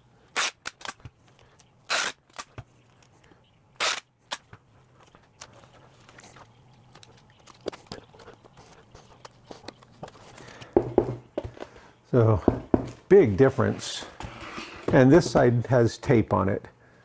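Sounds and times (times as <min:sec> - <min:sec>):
packing tape ripping: 0:00.3 - 0:01.1, 0:01.9 - 0:02.6, 0:03.8 - 0:04.5.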